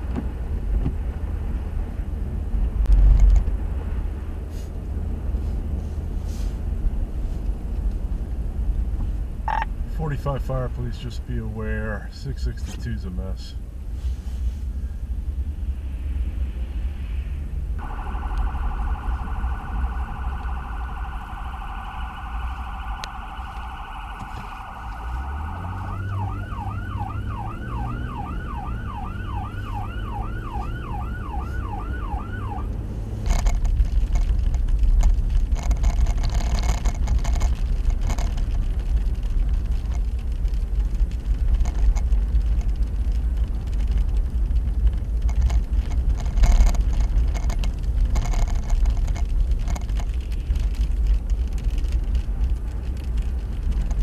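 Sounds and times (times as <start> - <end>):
road and driving noise: 0.0 - 54.0
electronic siren: 9.5 - 9.7, 17.8 - 32.7.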